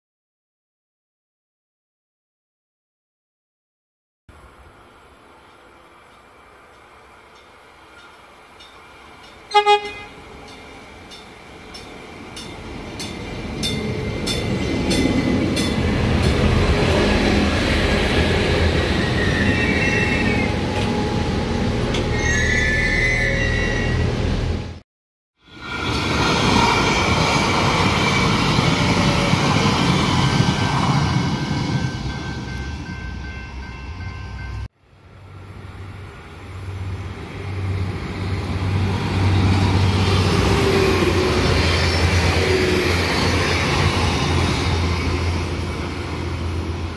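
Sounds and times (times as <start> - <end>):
train engine rumble: 4.3 - 24.8, 25.5 - 46.9
train wheel noise: 4.4 - 24.8, 25.5 - 46.9
wheel or brake squeal: 19.0 - 21.3, 22.0 - 24.2.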